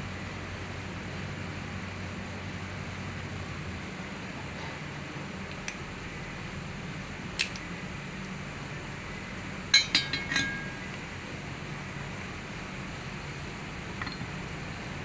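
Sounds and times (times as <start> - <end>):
steady low hum: 0.0 - 15.0
small metal parts clinking: 9.8 - 10.9.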